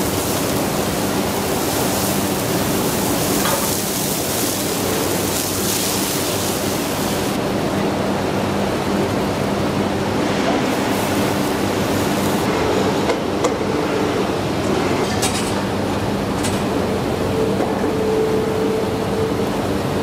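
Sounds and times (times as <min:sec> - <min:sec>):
factory machinery humming: 0:00.0 - 0:20.0.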